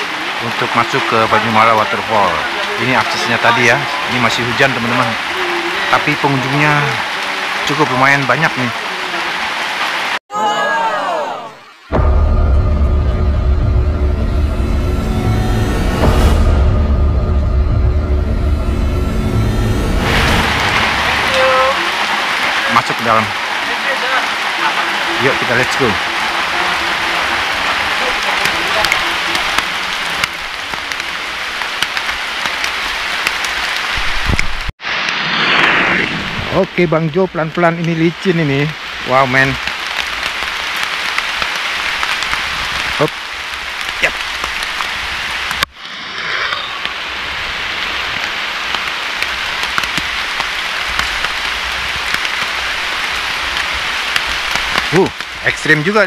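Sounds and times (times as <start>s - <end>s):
heavy rain on paving: 0.0s - 56.0s
raindrops ticking: 20.9s - 34.7s, 36.9s - 45.7s, 47.8s - 56.0s.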